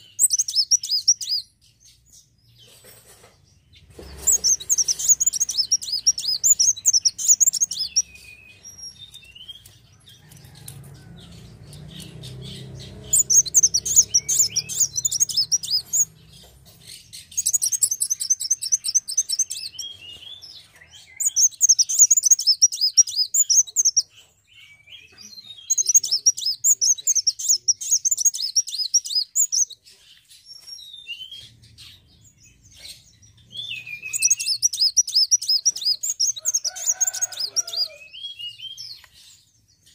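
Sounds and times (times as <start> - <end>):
sunbird twittering trills: 0.0 - 3.0, 3.6 - 39.9.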